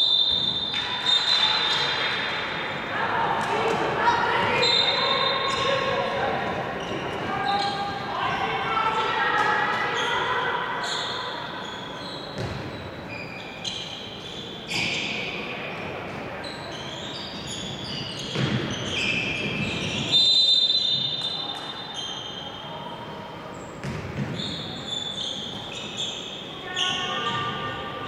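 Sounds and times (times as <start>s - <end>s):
sports shoes squeaking: 4.2s - 8.8s, 9.4s - 15.4s, 16.4s - 22.6s, 23.6s - 27.7s.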